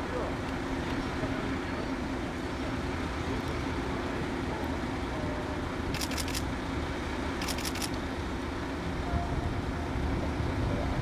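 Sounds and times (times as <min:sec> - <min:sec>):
propeller engine droning: 0:00.0 - 0:11.0
rapid sharp clicks: 0:05.9 - 0:06.4, 0:07.4 - 0:08.0.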